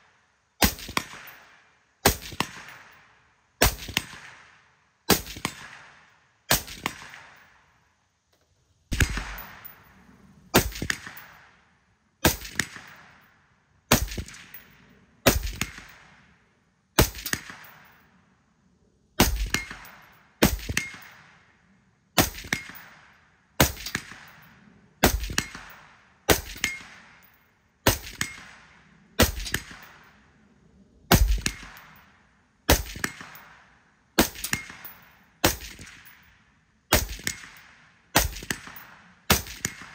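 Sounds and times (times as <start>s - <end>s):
suppressed rifle shots: 5.1s - 7.6s, 8.9s - 11.6s, 12.2s - 13.2s, 31.1s - 32.0s, 36.9s - 39.9s.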